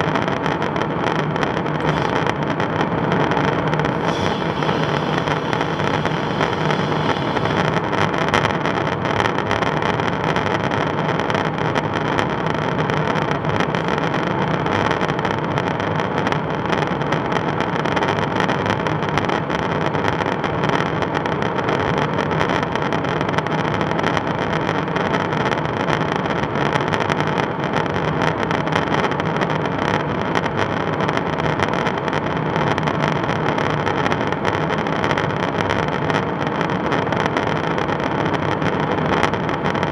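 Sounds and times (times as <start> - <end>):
airflow and jet engine noise: 0.1 - 9.2.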